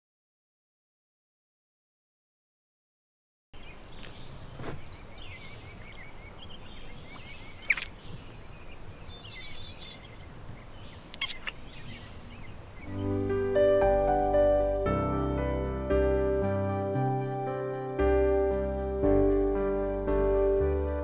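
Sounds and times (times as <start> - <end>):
birds chirping: 3.6 - 15.7.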